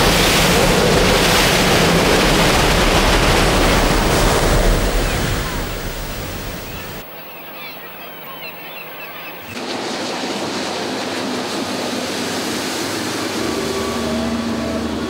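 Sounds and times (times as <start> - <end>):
gulls calling: 0.0 - 9.8, 12.9 - 15.0
motorboat speeding past: 7.8 - 15.0
bow wave rushing: 9.5 - 15.0.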